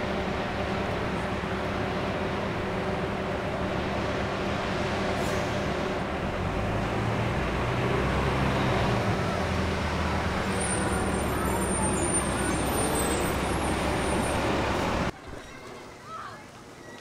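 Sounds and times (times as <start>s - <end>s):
bus engine running: 0.0s - 15.1s
city street traffic: 0.0s - 17.0s.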